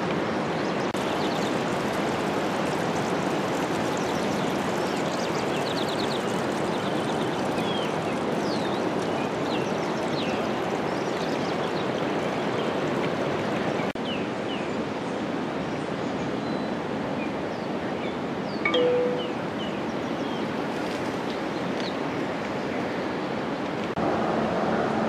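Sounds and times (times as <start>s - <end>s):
flowing water rushing: 0.0s - 17.1s
high chirps and trills: 18.7s - 19.8s.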